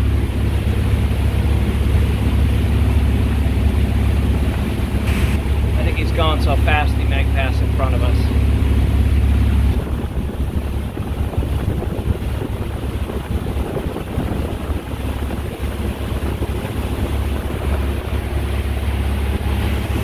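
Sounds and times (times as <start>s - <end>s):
powerboat engine drone: 0.0s - 20.0s
wind buffeting microphone: 8.4s - 20.0s.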